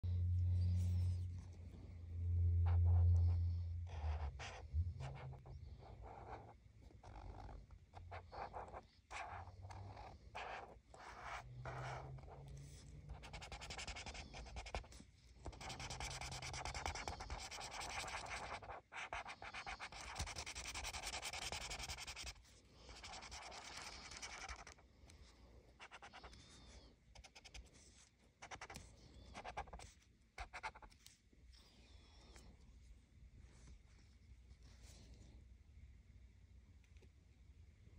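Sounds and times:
low rumble: 0.0 - 4.0
marker scratching on paper: 2.6 - 24.8, 25.8 - 31.2.

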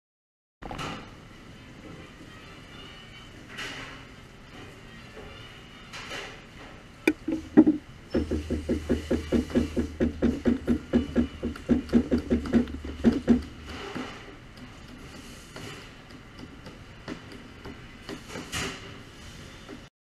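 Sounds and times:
knife chopping on cutting board: 7.1 - 13.5.

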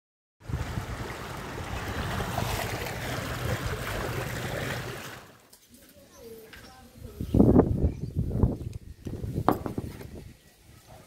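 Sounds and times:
wind buffeting microphone: 7.0 - 10.4.

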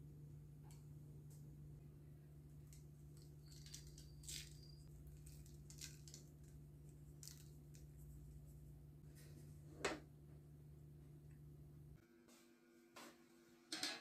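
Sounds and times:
steady low hum: 0.0 - 13.1
seeds sprinkling ticks and rustles: 2.6 - 8.4.

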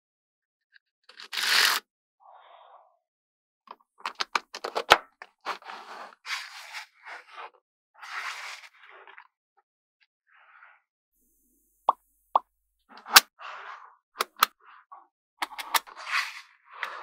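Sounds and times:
magnetic balls scraping on plastic: 12.9 - 17.0.

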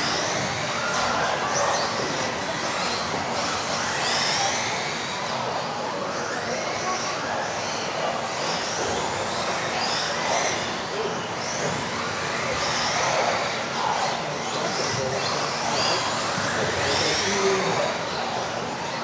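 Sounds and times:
rc car motors whining: 0.0 - 19.0.

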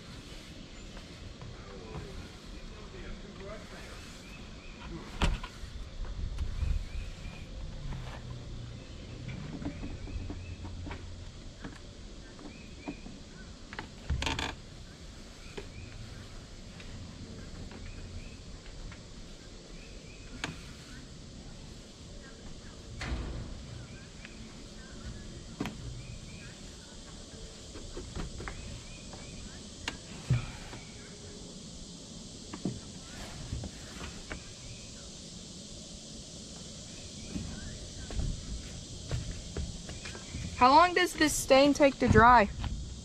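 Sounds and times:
brush on wood: 0.0 - 5.9, 20.4 - 21.9, 32.6 - 34.8
brush scrubbing deck boards: 0.0 - 22.8, 23.9 - 31.4, 32.5 - 35.1, 36.4 - 42.7.

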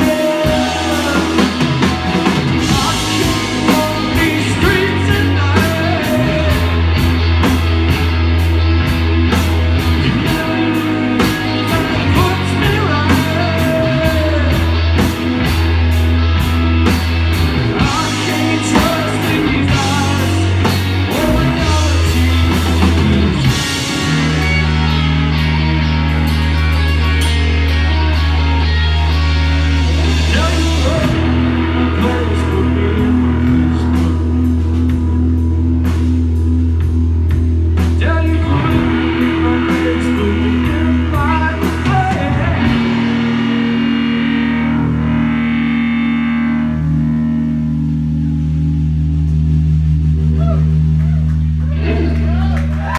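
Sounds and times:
person singing: 0.0 - 7.0, 10.0 - 14.8, 17.8 - 35.2, 37.8 - 43.4
bass guitar: 0.0 - 52.9
drum kit: 0.0 - 52.9
electric guitar: 0.0 - 52.9.

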